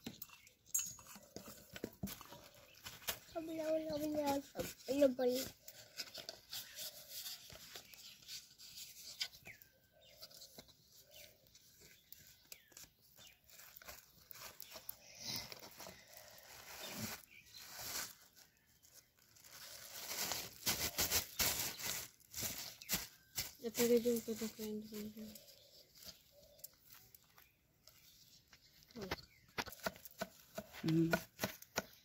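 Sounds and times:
stick scraping and rustling: 0.1 - 11.2.

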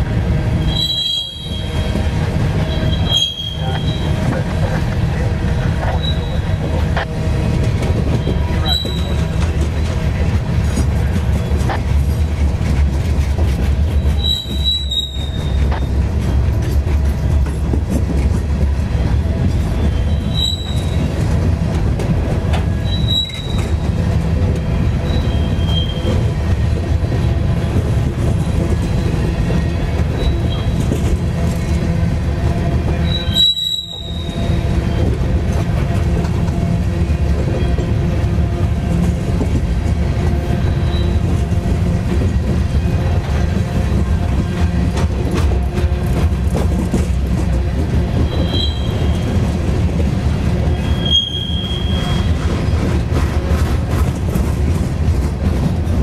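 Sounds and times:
train wheels rumbling on rails: 0.0 - 56.0
high-pitched wheel squeals: 0.6 - 1.8, 2.7 - 4.2, 5.8 - 6.6, 8.1 - 9.4, 13.9 - 15.9, 19.8 - 21.1, 22.8 - 23.9, 25.0 - 26.2, 30.1 - 30.9, 33.0 - 35.1, 40.6 - 41.3, 48.2 - 49.3, 50.6 - 52.4.

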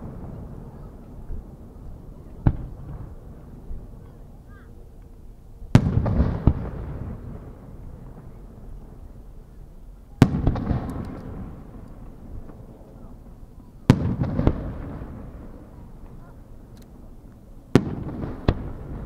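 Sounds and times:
small firework pops: 2.4 - 3.2, 10.2 - 13.0, 13.9 - 15.4, 16.0 - 19.0
firework shells bursting: 10.2 - 12.6.

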